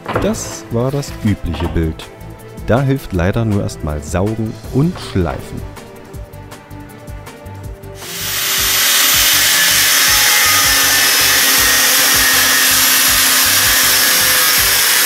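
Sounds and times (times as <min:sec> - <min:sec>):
angle grinder grinding steel: 0:08.0 - 0:15.0.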